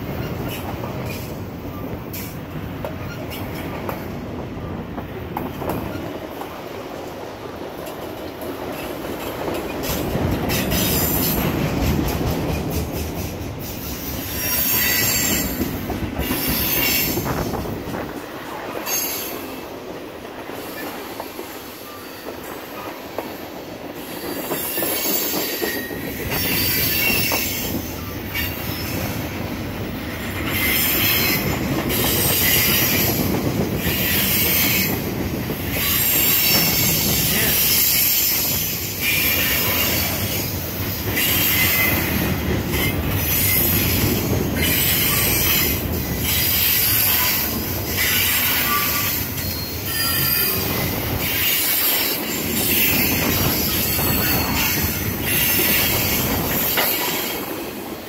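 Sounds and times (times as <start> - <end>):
train wheels rumbling on rail: 0.0 - 58.0
high wheel squeal: 13.8 - 15.6, 24.1 - 29.2, 42.7 - 57.3.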